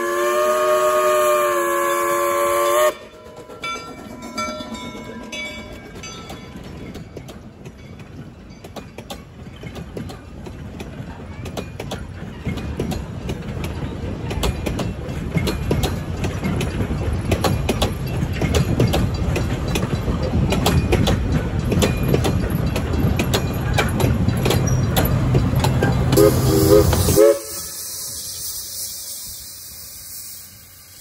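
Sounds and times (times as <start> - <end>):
short high train toots: 0.0 - 3.3, 25.8 - 30.8
train coaches rumbling past: 0.0 - 31.0
wheels clicking over rail joints: 2.7 - 31.0
steady hiss: 26.3 - 31.0.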